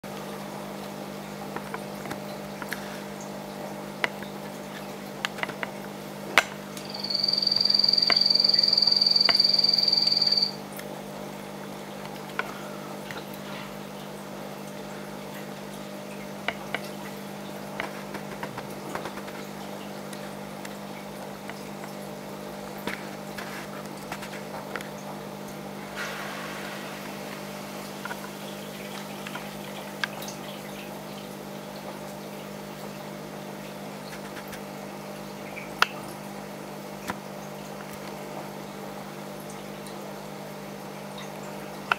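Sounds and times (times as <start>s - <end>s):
aquarium pump humming: 0.0s - 41.9s
water trickling: 0.1s - 41.9s
small ticks: 6.8s - 10.6s
high-pitched tone: 6.9s - 10.6s.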